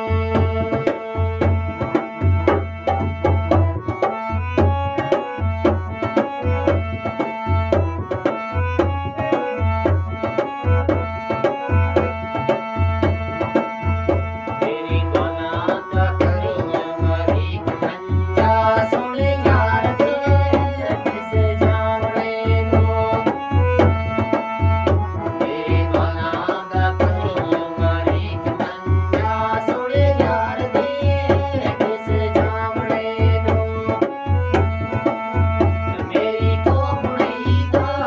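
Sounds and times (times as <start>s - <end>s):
harmonium folk melody: 0.0s - 38.0s
hand drum beat: 0.1s - 38.0s
man singing: 14.6s - 23.4s, 25.4s - 34.1s, 35.9s - 38.0s.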